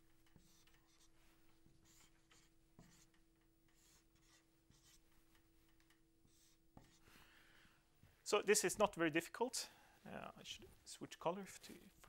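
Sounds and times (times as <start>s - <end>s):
marker squeaking on whiteboard: 0.3s - 1.2s, 1.8s - 5.0s.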